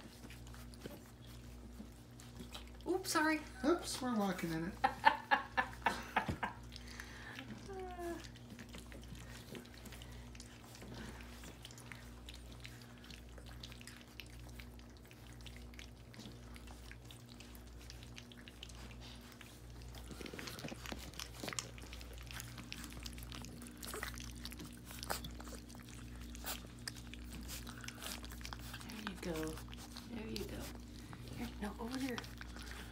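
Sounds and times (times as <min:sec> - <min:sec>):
puppies lapping and slurping: 0:00.0 - 0:32.9
steady low hum: 0:00.0 - 0:32.9.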